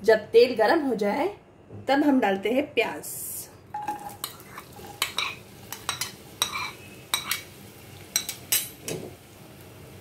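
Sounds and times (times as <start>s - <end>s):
onions sizzling in hot oil: 3.7s - 10.0s.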